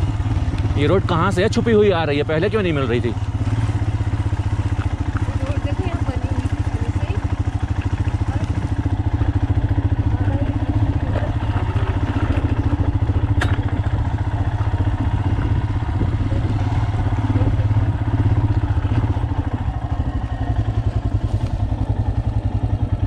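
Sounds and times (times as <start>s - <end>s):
motorcycle engine running: 0.0s - 23.0s
tyres on gravel: 2.7s - 15.9s.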